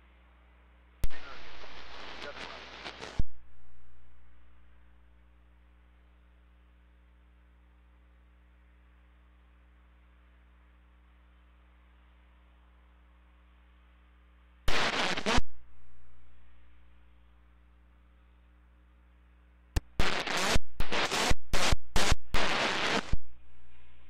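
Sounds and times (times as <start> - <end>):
faint radio hiss: 0.0 - 24.0
radio static crackling: 1.0 - 4.6, 14.7 - 16.8, 19.8 - 24.0.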